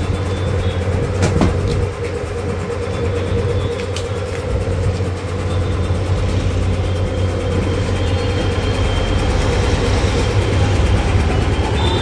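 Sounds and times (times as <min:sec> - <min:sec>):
machine humming: 0:00.0 - 0:12.0.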